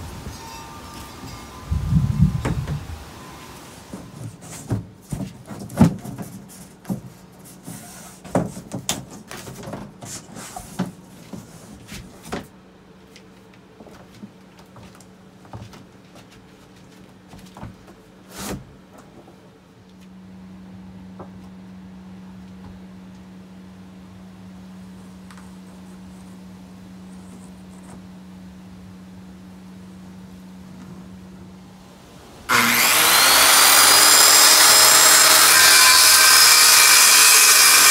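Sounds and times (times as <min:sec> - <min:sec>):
plywood sheets knocking and scraping: 0:03.9 - 0:12.5.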